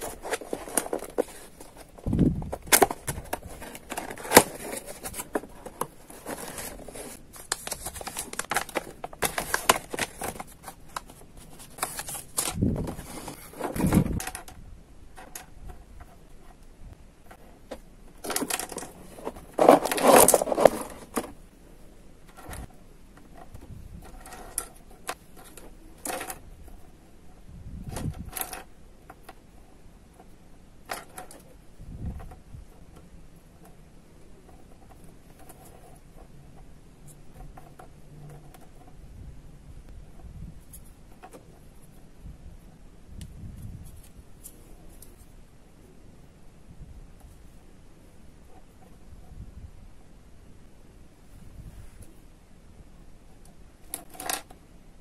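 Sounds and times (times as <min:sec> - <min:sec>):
cardboard box being opened: 0:00.0 - 0:14.1, 0:18.3 - 0:21.2
plastic toys clicking and clattering: 0:00.0 - 0:16.3, 0:17.3 - 0:21.4, 0:22.2 - 0:27.0, 0:27.9 - 0:29.5, 0:30.1 - 0:33.8, 0:53.4 - 0:54.6.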